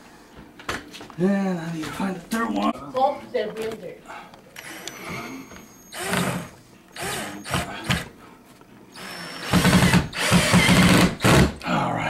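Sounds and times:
cordless drill driving a screw: 4.6 - 8.1, 9.0 - 11.5.

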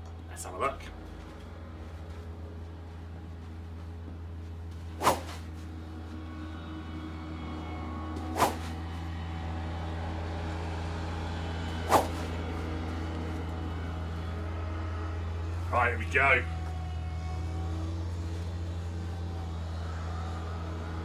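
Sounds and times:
steady low hum: 0.0 - 21.0
club swing whooshes: 4.9 - 5.5, 8.3 - 8.7, 11.9 - 12.3.

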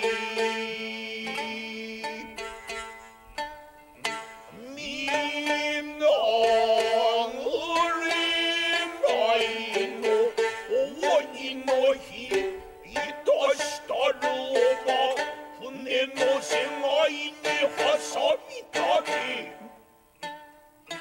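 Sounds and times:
plucked shamisen notes: 0.0 - 21.0
narrator chanting sung line: 4.5 - 10.0, 10.7 - 19.7.

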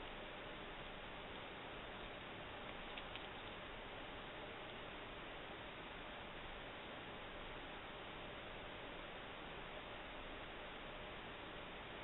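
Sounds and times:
recording noise hiss: 0.0 - 12.0
faint clicks: 2.6 - 3.6.

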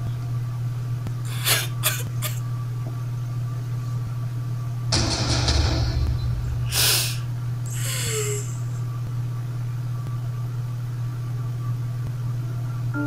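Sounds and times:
steady low hum: 0.0 - 13.0
woman crying: 1.3 - 2.4, 6.7 - 8.7
sharp sniff: 6.7 - 8.6.

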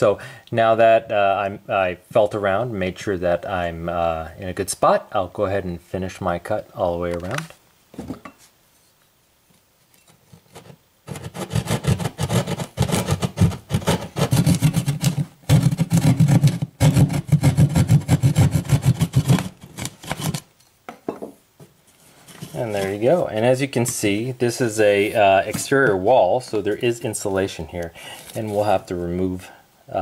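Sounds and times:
hand saw cutting drywall: 11.1 - 20.4.

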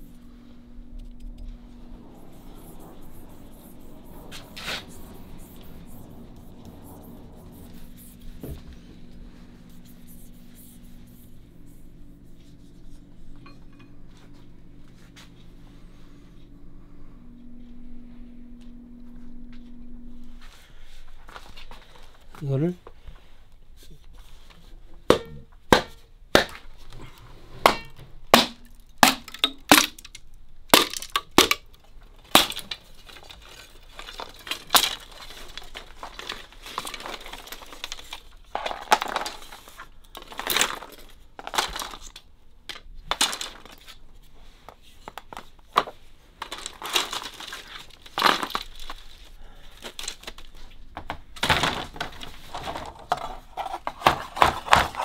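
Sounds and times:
bamboo cracking and splintering: 28.3 - 39.4, 46.4 - 50.6.

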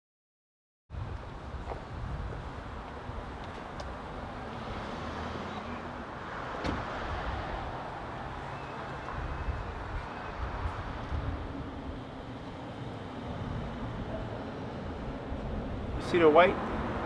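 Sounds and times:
car driving past: 4.2 - 17.0.

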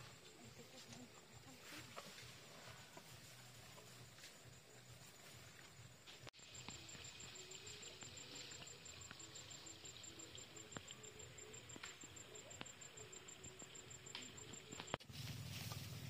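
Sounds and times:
insect calling in rapid pulses: 6.4 - 15.0.

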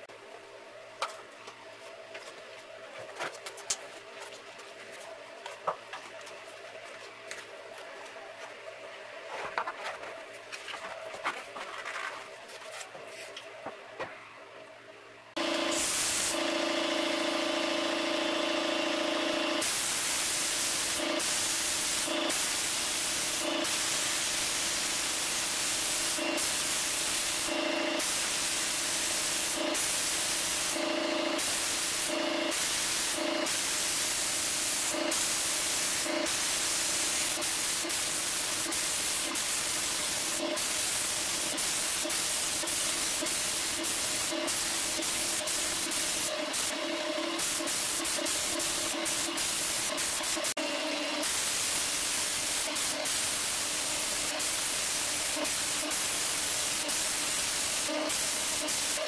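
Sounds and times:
spray gun hissing: 15.4 - 59.0.

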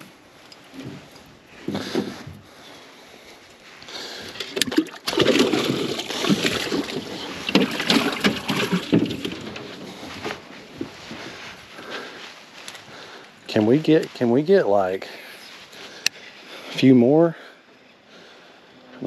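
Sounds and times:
water splashing against boat: 4.2 - 10.5.

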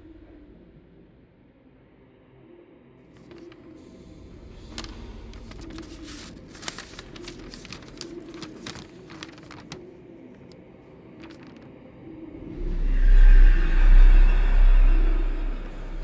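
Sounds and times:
paper crinkling: 3.2 - 3.7, 4.7 - 11.8.

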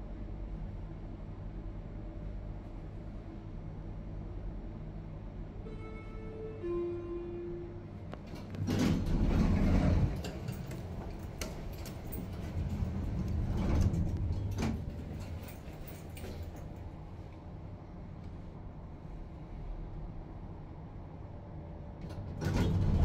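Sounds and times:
lift doors sliding: 8.2 - 16.8, 22.1 - 23.0.

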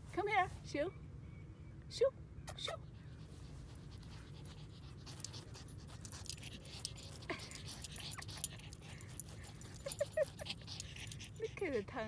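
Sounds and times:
dog panting: 3.0 - 12.0.

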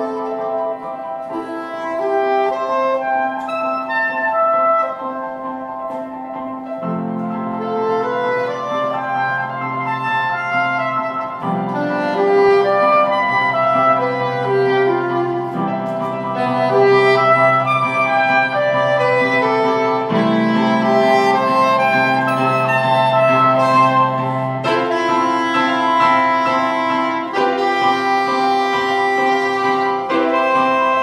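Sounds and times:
grand piano chords: 0.0 - 31.0
soprano saxophone melody: 0.0 - 31.0.

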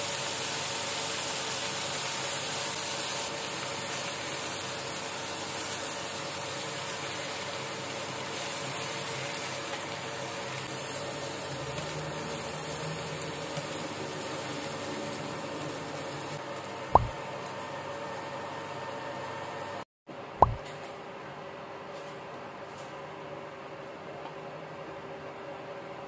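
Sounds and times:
food sizzling in frying pan: 0.0 - 19.8.

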